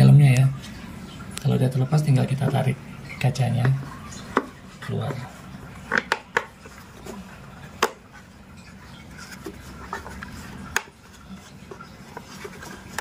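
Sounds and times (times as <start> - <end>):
light rubbing of plastic: 3.5 - 13.0
plastic parts clicking and knocking: 5.9 - 6.6.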